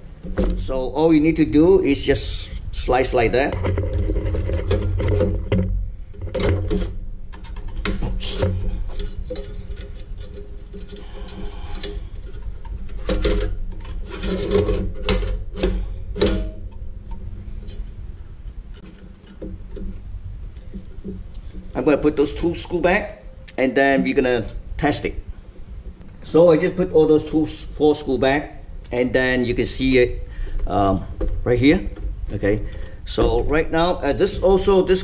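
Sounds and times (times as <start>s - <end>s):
steady low hum: 0.0s - 35.0s
sheet metal knocking and scraping: 3.2s - 20.0s.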